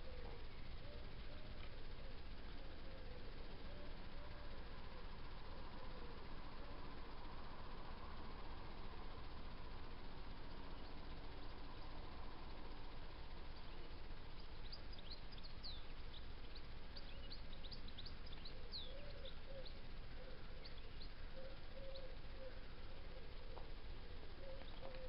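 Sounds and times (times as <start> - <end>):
low background noise: 0.0 - 25.0
birds chirping: 8.5 - 25.0
lower bird call: 9.3 - 25.0.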